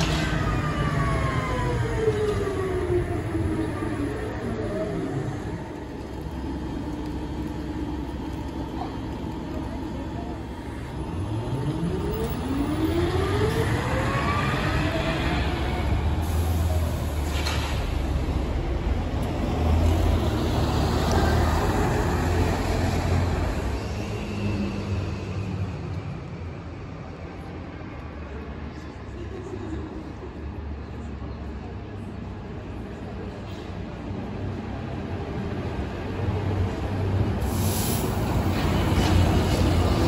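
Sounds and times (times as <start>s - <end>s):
trolleybus motor whine: 0.0s - 20.2s
low rumble of tyres and traffic: 0.0s - 40.0s.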